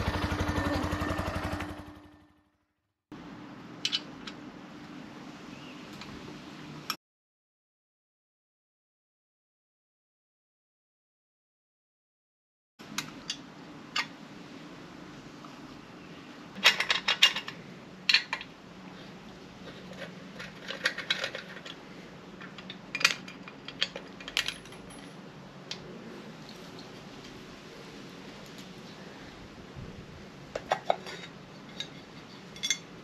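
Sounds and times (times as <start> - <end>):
metal tools and bolts clinking: 16.6 - 18.5, 19.6 - 25.3, 30.6 - 33.0.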